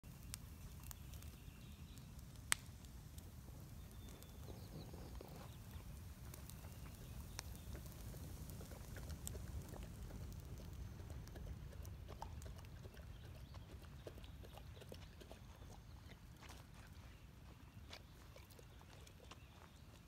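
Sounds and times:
campfire crackling and popping: 0:00.0 - 0:14.0.

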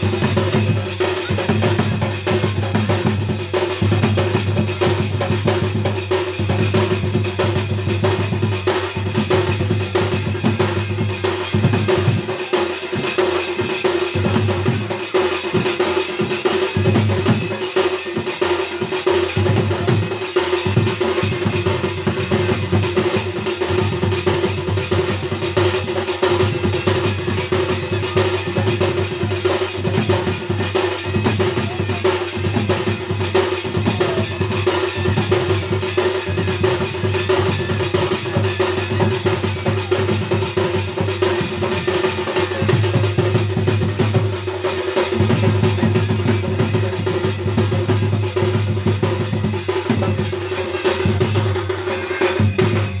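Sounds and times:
fast drumming on barrel drum: 0:00.0 - 0:53.0.

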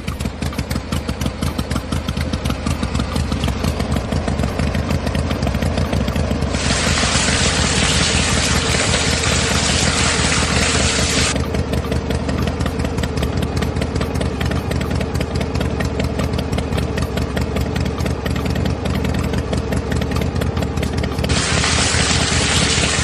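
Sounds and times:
small motor humming: 0:06.5 - 0:11.4, 0:21.3 - 0:23.0
bright hiss: 0:06.6 - 0:11.3, 0:21.3 - 0:23.0.

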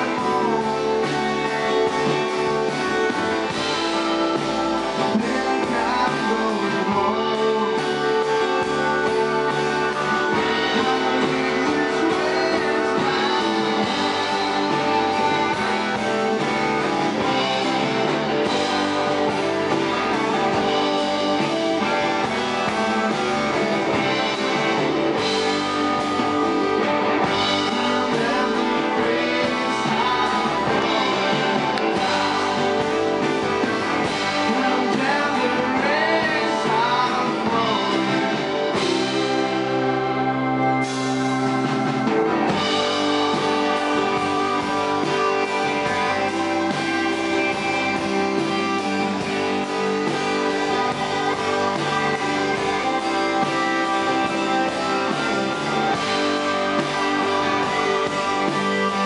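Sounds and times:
bass guitar: 0:00.0 - 0:59.0
drums: 0:00.0 - 0:59.0
electric and acoustic guitars: 0:00.0 - 0:59.0.

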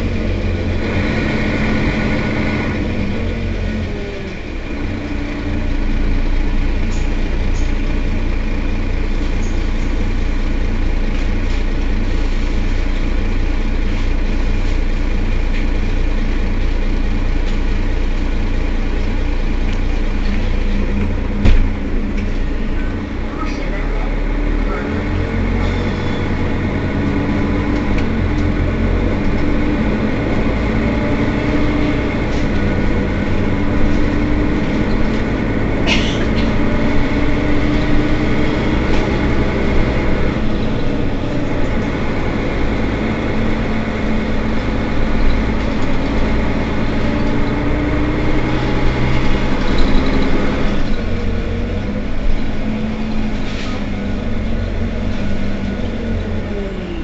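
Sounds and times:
bus engine running: 0:00.0 - 0:57.0.

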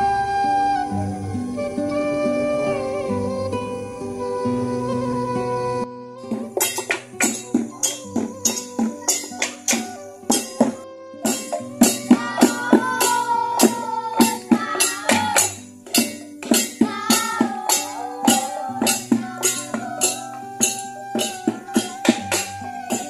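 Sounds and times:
held melody: 0:00.0 - 0:23.0
jingling percussion: 0:06.3 - 0:23.0.

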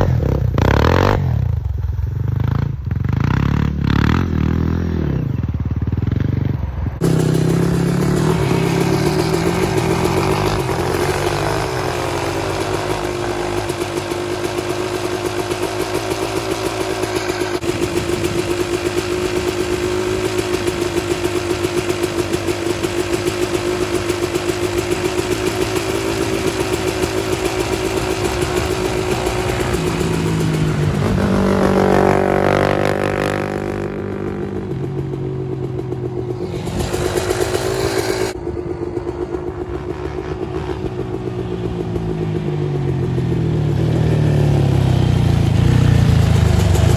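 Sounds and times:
quad engine at high revs: 0:00.0 - 0:06.4, 0:07.0 - 0:46.9
dirt bike revving: 0:00.0 - 0:46.9.

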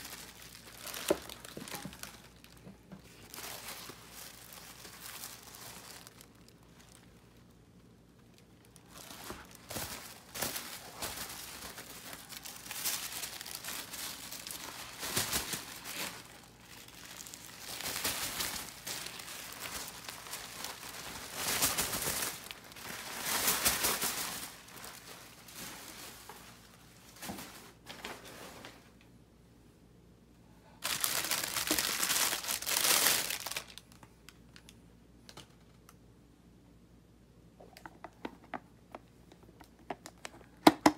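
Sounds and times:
paper bags crumpled by hand: 0:00.0 - 0:27.9, 0:30.8 - 0:34.7.

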